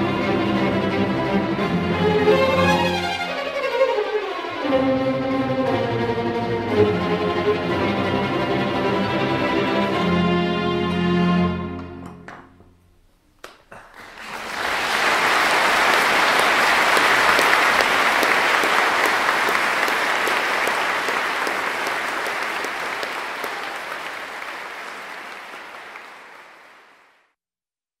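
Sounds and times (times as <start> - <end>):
crowd applauding: 13.4 - 27.4.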